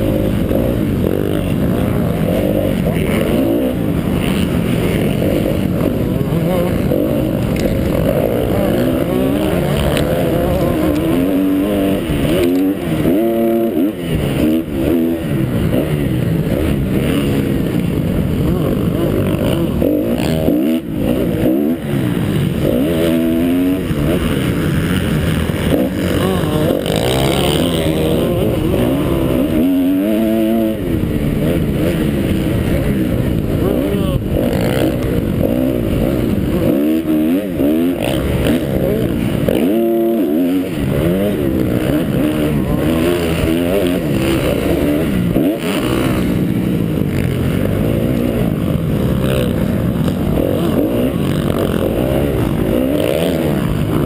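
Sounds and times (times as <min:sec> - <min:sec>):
motorcycle engine revving: 0:00.0 - 0:54.0.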